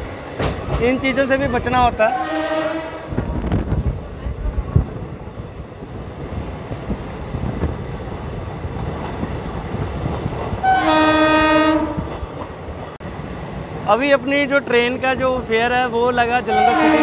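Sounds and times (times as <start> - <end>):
train rumbling along track: 0.0 - 17.0
train horn blast: 2.0 - 3.1, 10.6 - 12.1, 16.5 - 17.0.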